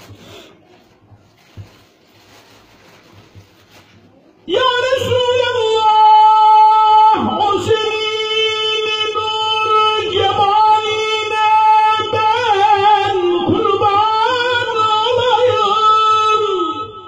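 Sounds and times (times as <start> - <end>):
man chanting into a microphone: 4.4 - 17.0.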